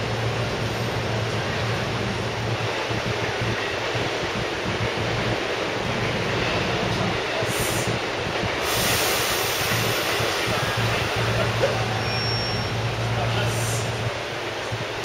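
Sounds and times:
continuous rumble: 0.0s - 15.0s
train low hum: 0.0s - 15.0s
short air hisses: 8.6s - 10.1s.

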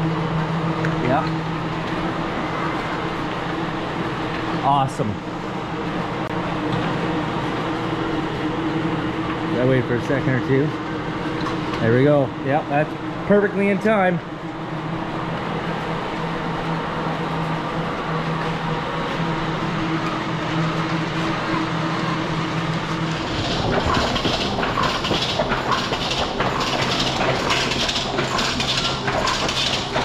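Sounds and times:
machinery humming: 0.0s - 30.0s
fast mechanical clatter: 22.7s - 30.0s.

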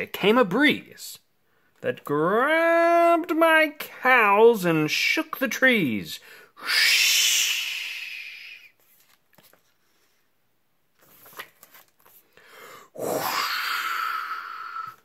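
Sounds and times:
person blowing whooshing breath: 6.6s - 8.8s
book page turning: 8.8s - 10.3s, 10.9s - 12.4s.

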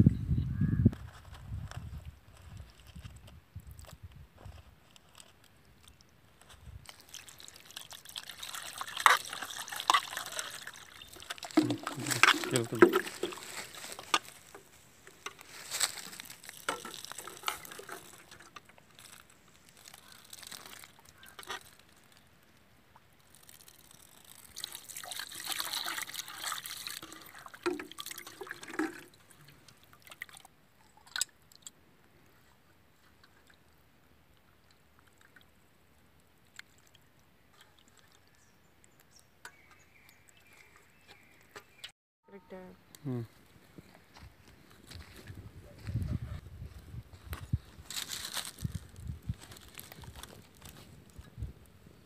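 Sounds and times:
water sloshing in metal bowl: 6.9s - 14.6s, 16.0s - 19.2s, 23.3s - 31.2s.

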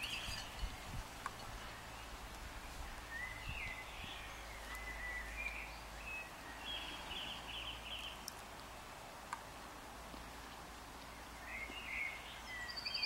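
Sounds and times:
faint bird song: 0.0s - 9.0s, 10.3s - 13.0s
outdoor background noise: 0.0s - 13.0s.

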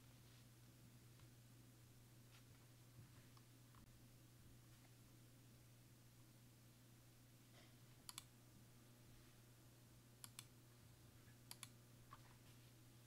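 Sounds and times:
computer mouse clicks: 8.0s - 8.3s, 10.2s - 10.5s, 11.4s - 12.2s.

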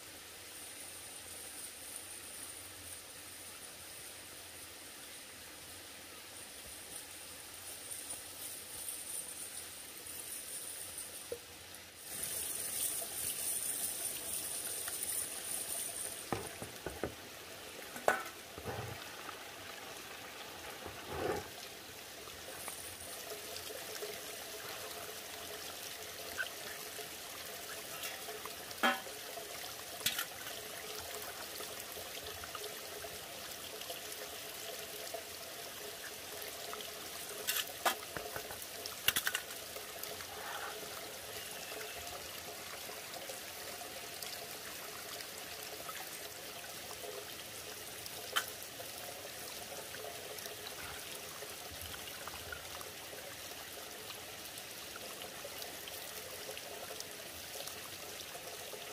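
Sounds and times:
water running into plastic basin: 12.1s - 25.6s.

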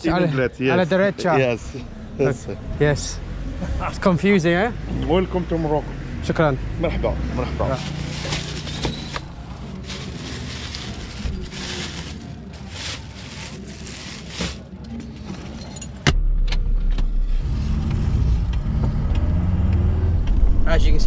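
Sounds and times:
van engine running: 3.9s - 14.6s
plastic bag rustling: 7.7s - 14.8s.

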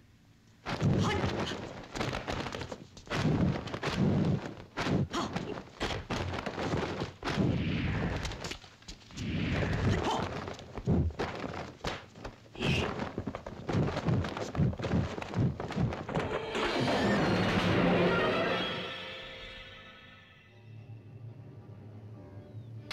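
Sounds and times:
punch and kick impacts: 0.6s - 8.5s.

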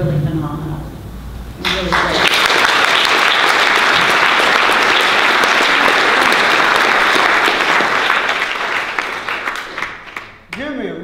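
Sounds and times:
audience clapping: 1.6s - 10.8s.

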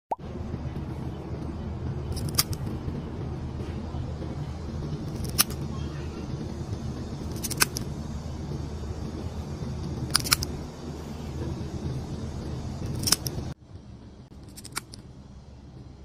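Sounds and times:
steady low hum: 0.2s - 16.0s
nail clipper snipping claws: 2.2s - 2.6s, 5.1s - 5.6s, 7.3s - 7.8s, 10.1s - 10.5s, 12.9s - 13.4s, 14.4s - 15.0s.

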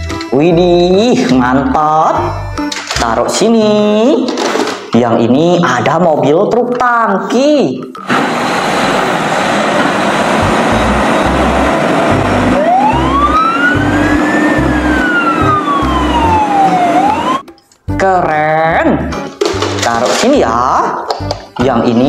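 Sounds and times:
vehicle rushing noise with rumbles: 8.1s - 17.4s
siren wail: 9.6s - 17.5s.

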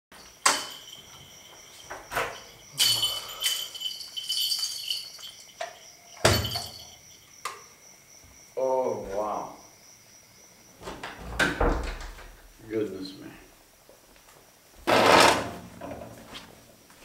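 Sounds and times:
jingling rattle: 0.1s - 7.3s
high insect trill: 0.1s - 11.9s
door knocks and clatter: 6.2s - 6.8s, 10.8s - 12.4s.

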